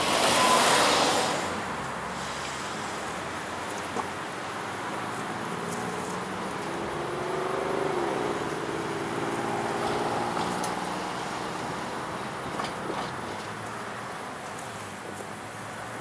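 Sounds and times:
engine running: 0.0s - 16.0s.

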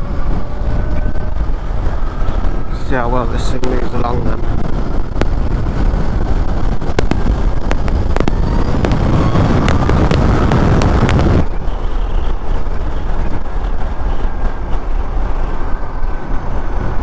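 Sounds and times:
wind rushing over microphone: 0.0s - 17.0s.

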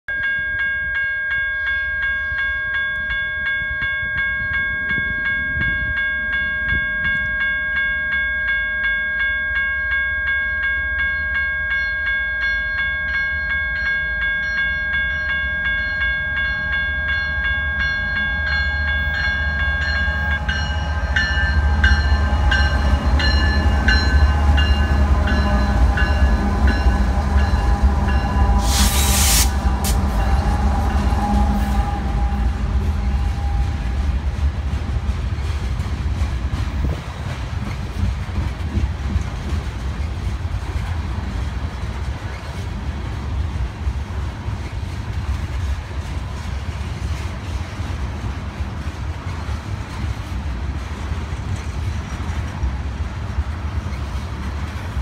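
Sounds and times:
crossing warning bell ringing: 0.1s - 37.0s
train cars rolling: 1.6s - 55.0s
diesel locomotive rumble: 15.1s - 55.0s
hiss from locomotives: 28.4s - 33.0s.

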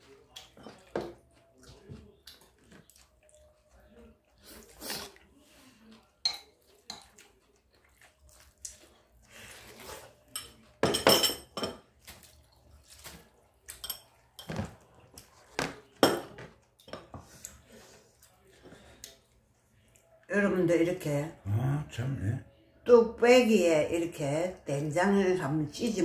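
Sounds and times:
spoon and chopsticks clinking on bowls: 6.2s - 7.2s, 10.3s - 11.9s, 13.7s - 14.7s.

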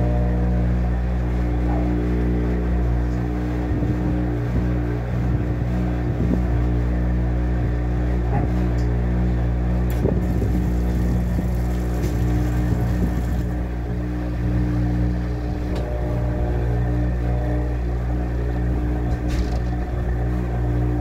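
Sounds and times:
washing machine motor hum: 9.0s - 21.0s
washing machine knocks and clunks: 9.9s - 13.6s.

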